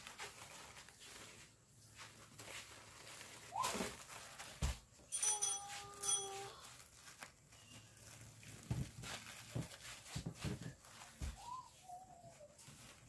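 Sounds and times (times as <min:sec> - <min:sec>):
rustling of mesh and burlap wrap: 0:00.0 - 0:13.0
whistle-like tone: 0:11.4 - 0:12.5.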